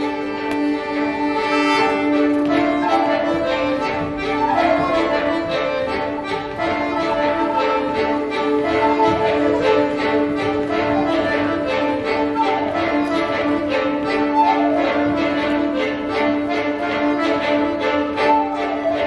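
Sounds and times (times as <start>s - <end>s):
folk ensemble playing dance music: 0.0s - 19.0s.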